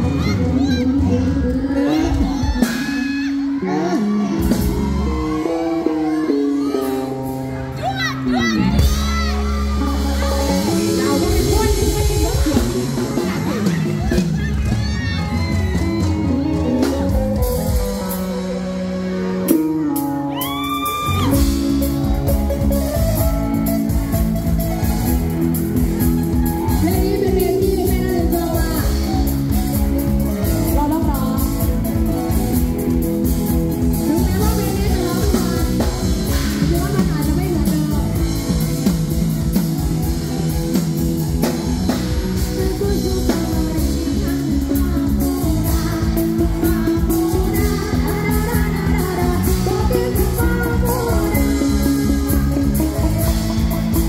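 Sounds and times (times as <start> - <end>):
live rock band playing: 0.0 - 54.0
woman singing lead: 0.0 - 54.0.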